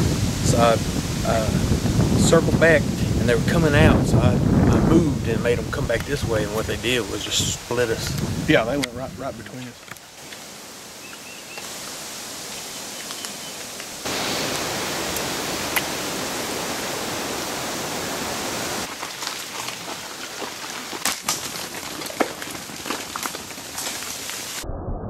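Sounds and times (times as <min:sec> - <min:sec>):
woodland ambience hiss: 0:05.3 - 0:21.5
sharp snaps and crackles: 0:08.0 - 0:10.5, 0:18.8 - 0:24.6.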